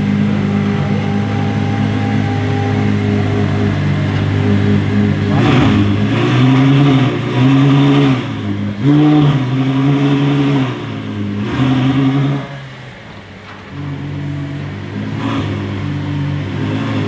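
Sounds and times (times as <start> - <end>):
car engine revving: 0.0 - 17.0.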